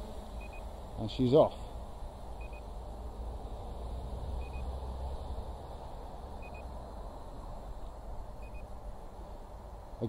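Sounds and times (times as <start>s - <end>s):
low rumble and hiss: 0.0s - 10.0s
transmitter double beep: 6.4s - 6.6s.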